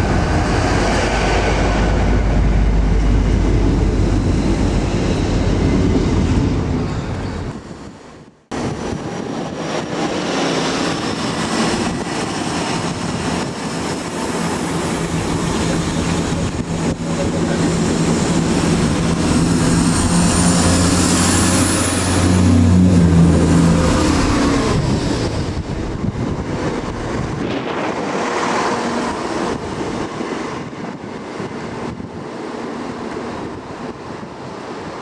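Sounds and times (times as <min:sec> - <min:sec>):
diesel train engines droning: 0:00.0 - 0:35.0
train rushing noise: 0:00.0 - 0:35.0.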